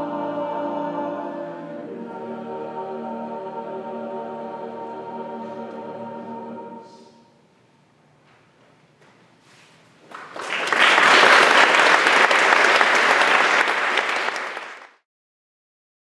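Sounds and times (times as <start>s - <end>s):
audience applause: 10.1s - 15.0s.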